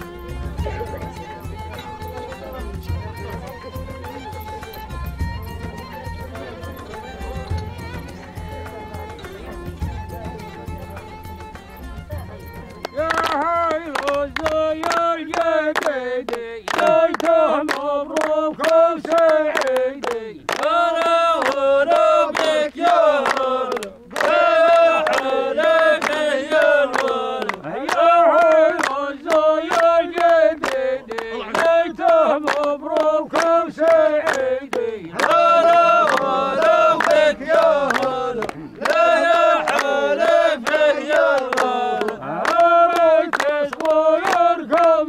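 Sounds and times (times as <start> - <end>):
hand clapping: 0.0 - 45.0
men chanting in unison: 13.0 - 45.0.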